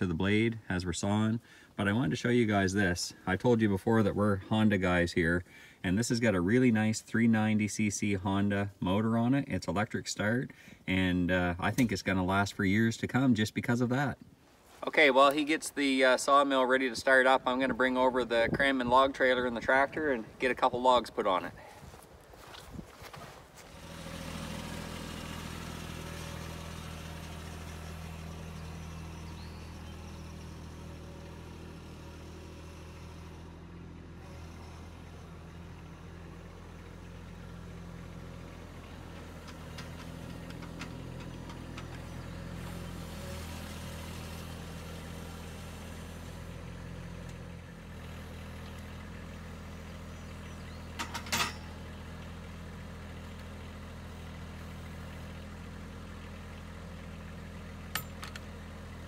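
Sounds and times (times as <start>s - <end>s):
tractor diesel engine running: 0.0s - 59.0s
short clank: 51.0s - 51.8s.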